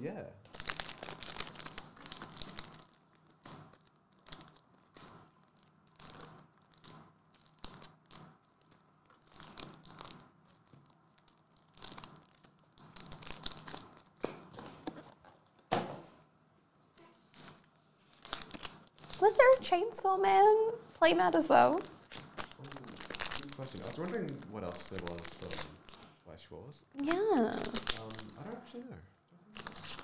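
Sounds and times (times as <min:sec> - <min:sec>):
foil packs crinkling: 0:00.5 - 0:14.2, 0:17.3 - 0:19.8, 0:21.4 - 0:26.2, 0:27.0 - 0:28.8, 0:29.6 - 0:30.0.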